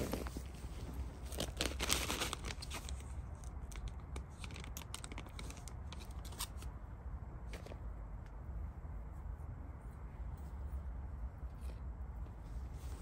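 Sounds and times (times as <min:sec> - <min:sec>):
fabric rustling: 0:00.0 - 0:03.0, 0:11.5 - 0:13.0
sharp light clicks and crackles: 0:02.3 - 0:06.7.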